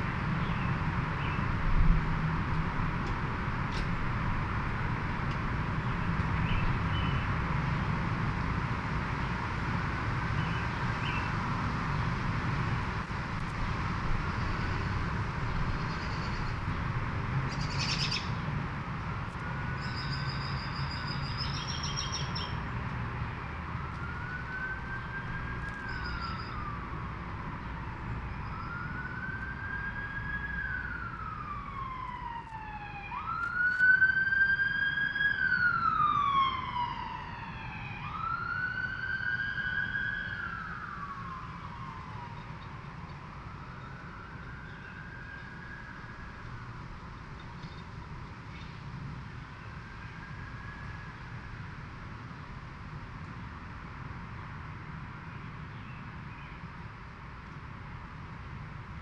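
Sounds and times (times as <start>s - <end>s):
bird chirps: 17.5s - 18.4s, 19.8s - 22.6s, 25.8s - 26.6s
siren wailing: 23.4s - 46.8s.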